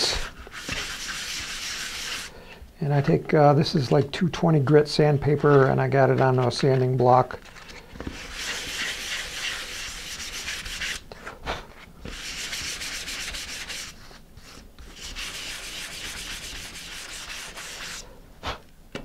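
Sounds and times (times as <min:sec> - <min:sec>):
sandpaper rubbing on wood: 0:00.0 - 0:02.3, 0:08.1 - 0:11.0, 0:12.1 - 0:18.1.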